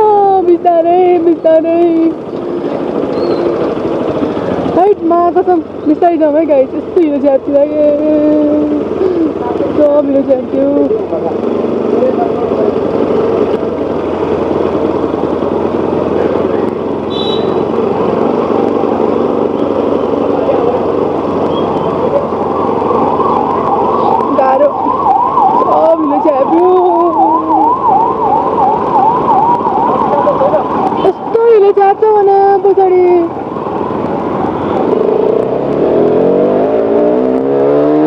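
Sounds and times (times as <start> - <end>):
motorcycle engine: 0.0 - 38.0
tyres on wet road: 0.0 - 38.0
electronic siren yelp: 21.5 - 31.8.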